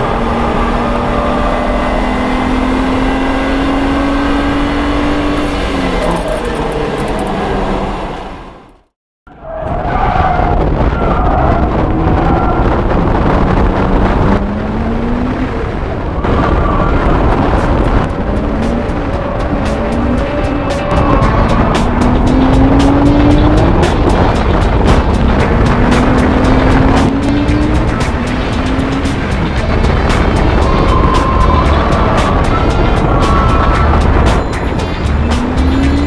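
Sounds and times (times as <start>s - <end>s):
car engine revving: 0.0s - 8.8s, 9.6s - 36.0s
road noise: 0.0s - 36.0s.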